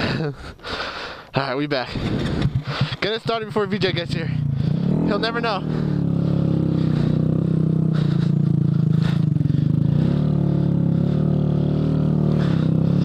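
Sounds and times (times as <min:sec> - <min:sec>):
motorcycle engine running: 0:01.9 - 0:13.0.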